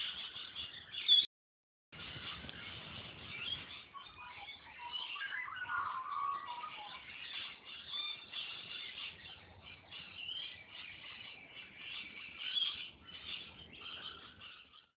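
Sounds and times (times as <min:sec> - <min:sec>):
small birds chirping: 0:00.0 - 0:01.3, 0:02.0 - 0:15.0.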